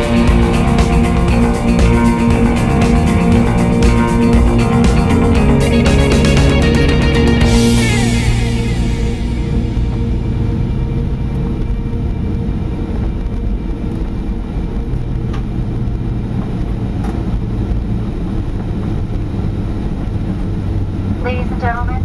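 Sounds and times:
jet airliner cabin rumble: 0.0s - 22.0s.

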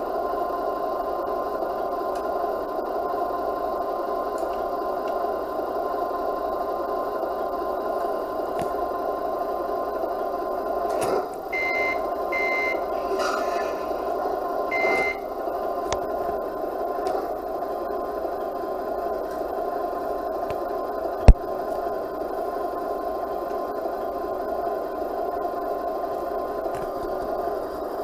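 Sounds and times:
speaker droning hum: 0.0s - 28.0s
high electronic beeps: 11.6s - 13.1s, 14.7s - 15.3s.

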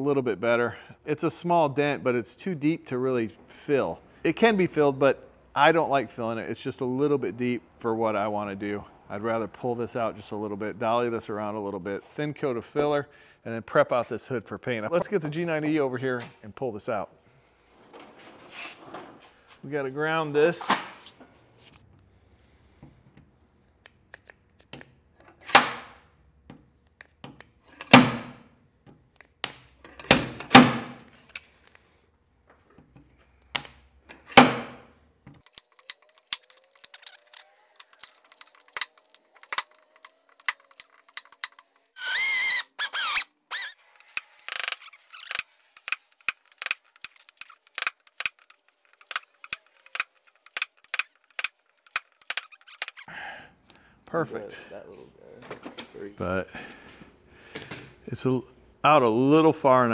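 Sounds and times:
crackling weld zaps: 35.4s - 53.1s.

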